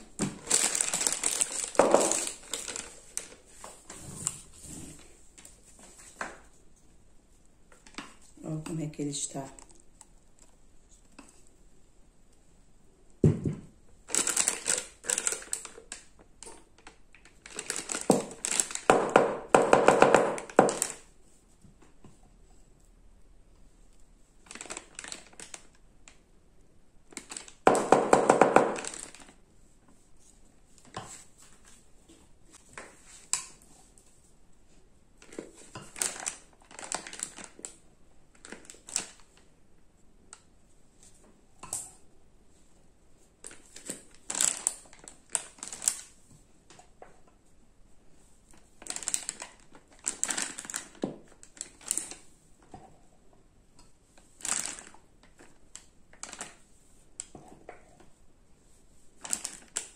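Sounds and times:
plastic bag rustling: 0.0 - 6.8, 14.0 - 19.0, 24.4 - 25.8, 27.1 - 34.3, 35.2 - 39.5, 43.3 - 46.2, 48.3 - 52.3, 54.0 - 57.0, 58.8 - 59.9.

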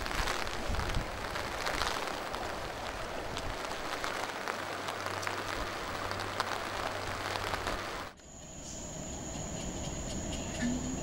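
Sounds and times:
rain falling on foliage: 0.0 - 8.2.

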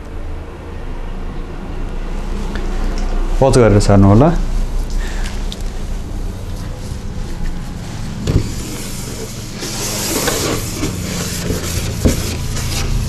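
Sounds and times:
steady low hum: 0.0 - 13.0
eraser rubbing on whiteboard: 8.4 - 13.0.

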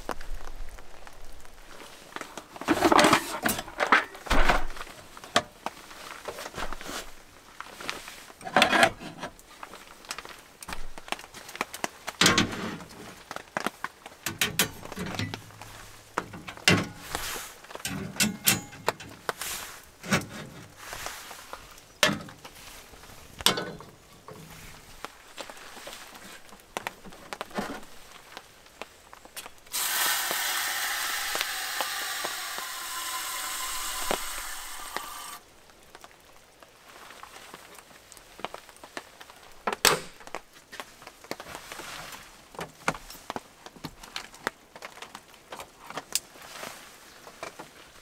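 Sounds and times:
camp gear knocking and clicking: 2.6 - 5.7, 8.4 - 9.4, 10.7 - 19.4, 20.0 - 20.8, 22.0 - 22.5, 23.4 - 25.1, 39.6 - 40.4.

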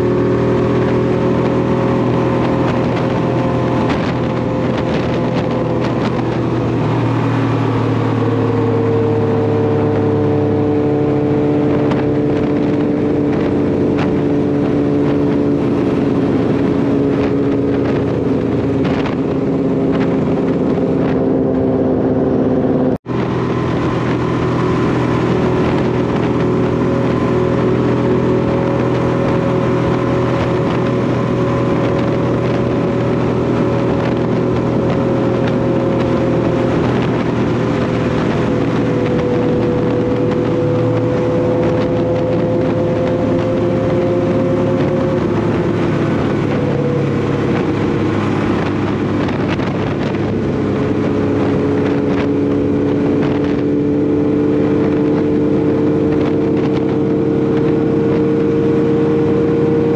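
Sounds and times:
motorcycle engine cruising: 0.0 - 59.9
wind rush on microphone: 0.0 - 59.9.

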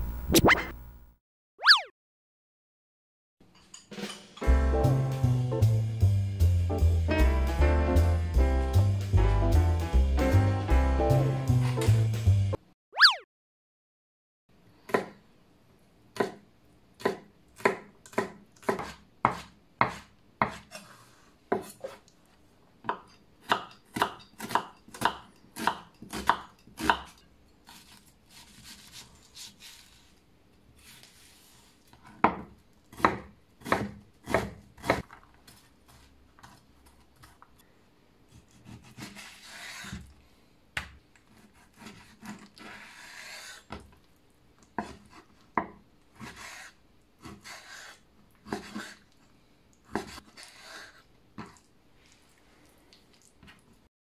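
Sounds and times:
knife chopping on wooden board: 17.0 - 20.7, 22.9 - 27.1, 32.2 - 35.0
knife slicing raw meat: 38.3 - 40.1.

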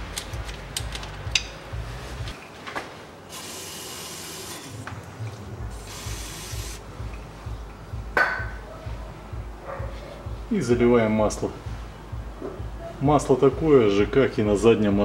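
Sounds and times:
aerosol spray hissing: 5.8 - 6.8.

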